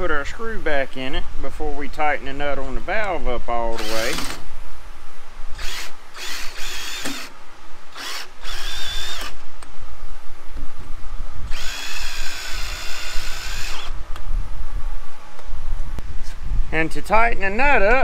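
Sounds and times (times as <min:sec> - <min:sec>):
cordless drill driving screw: 0:03.8 - 0:04.4, 0:05.6 - 0:07.3, 0:07.9 - 0:09.4, 0:11.5 - 0:14.0.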